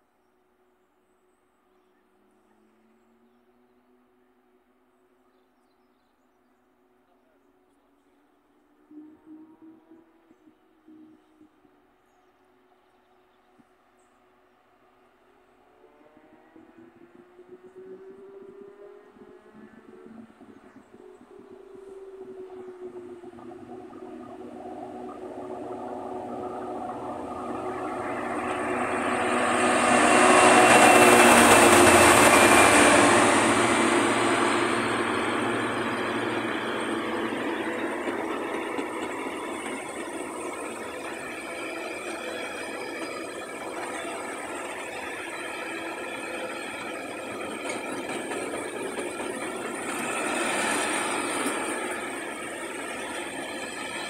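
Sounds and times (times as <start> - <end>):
diesel locomotive passing: 13.5 - 54.0.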